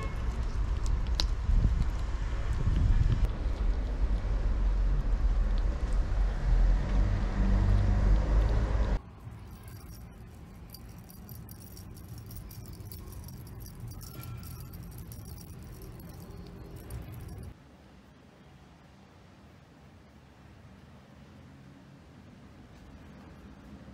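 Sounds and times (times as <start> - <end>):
wind buffeting microphone: 0.6 - 3.4
toy balls jingling and rattling: 9.0 - 17.6.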